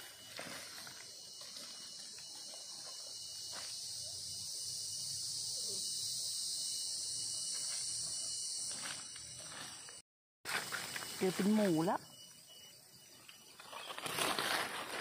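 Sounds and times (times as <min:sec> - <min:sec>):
high-pitched insect chorus: 0:00.0 - 0:15.0
footsteps in dry leaves: 0:13.6 - 0:15.0.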